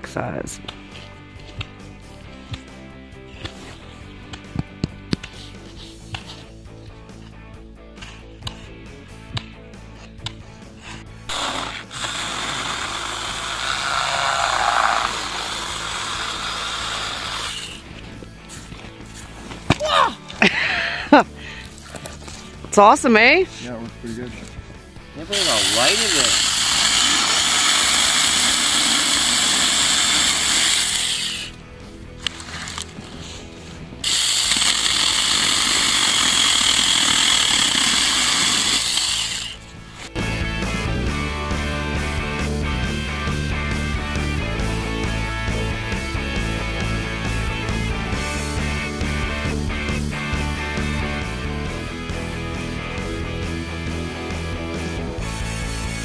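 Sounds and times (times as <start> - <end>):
background music: 0.0 - 56.0
electric chainsaw cutting branches: 10.2 - 23.4, 25.2 - 56.0.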